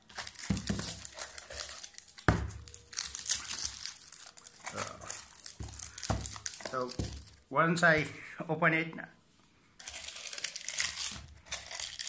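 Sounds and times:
plastic packaging crinkling: 0.0s - 7.4s, 9.8s - 12.0s.

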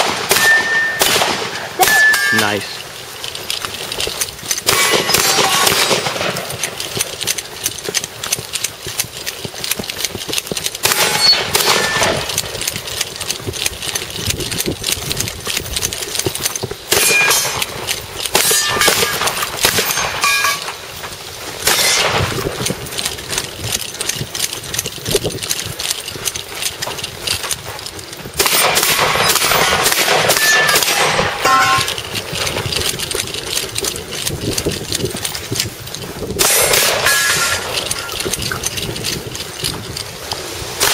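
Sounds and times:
shotgun shots: 0.0s - 2.6s, 4.6s - 6.6s, 10.8s - 12.3s, 16.9s - 20.8s, 21.6s - 22.4s, 28.4s - 32.0s, 36.4s - 37.8s
steel targets ringing: 0.0s - 2.8s, 16.9s - 17.6s, 18.4s - 20.8s, 28.5s - 32.0s, 36.5s - 38.1s
camera knocking and rustling: 2.8s - 40.9s.

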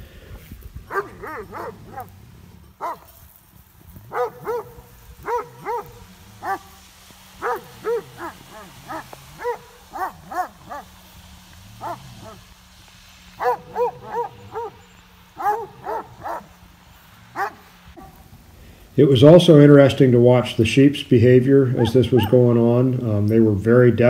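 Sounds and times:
dogs barking: 0.8s - 3.2s, 3.9s - 12.6s, 13.3s - 18.3s, 21.7s - 22.8s.

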